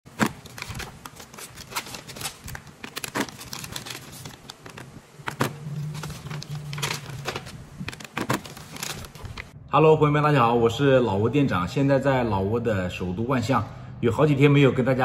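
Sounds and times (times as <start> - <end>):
paper rustling: 0.1 - 9.5.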